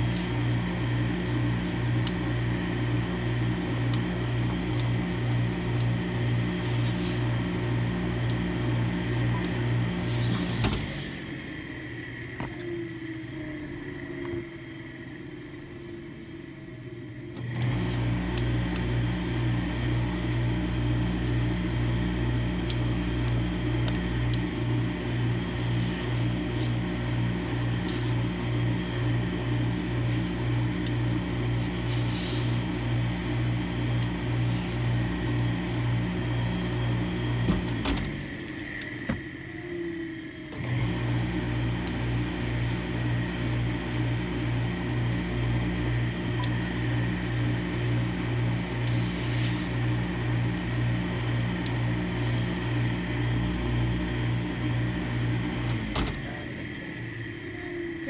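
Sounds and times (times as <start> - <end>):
steam press pulsing hum: 0.0 - 58.0.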